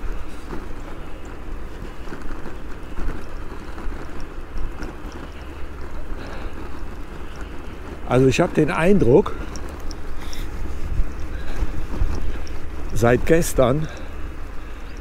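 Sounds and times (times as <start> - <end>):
bicycle tyre rumble: 0.0 - 15.0
bike rattling: 0.0 - 15.0
wind on microphone: 9.2 - 13.3.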